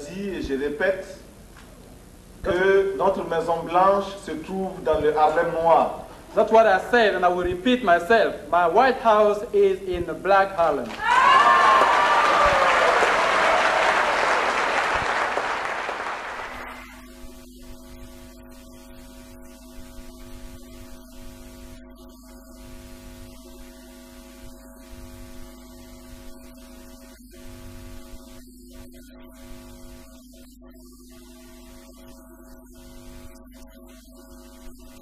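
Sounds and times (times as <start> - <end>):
audience applauding: 10.9 - 16.9.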